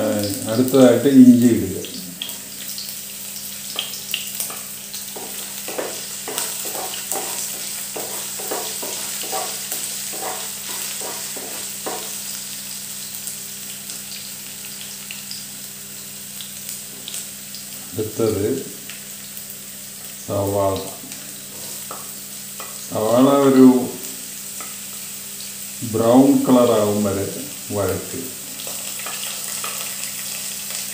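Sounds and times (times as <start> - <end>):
garlic sizzling in hot oil: 0.0 - 30.9
spatula scraping a pan: 4.4 - 12.2.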